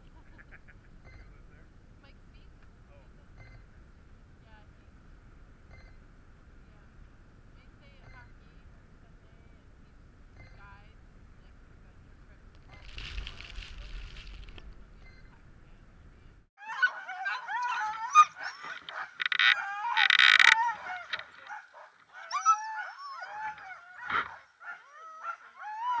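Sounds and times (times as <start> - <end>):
faint low rumble: 0.0 - 16.5
dogs barking harshly: 16.6 - 20.0, 23.4 - 25.6
dogs yelping and howling: 16.6 - 26.0.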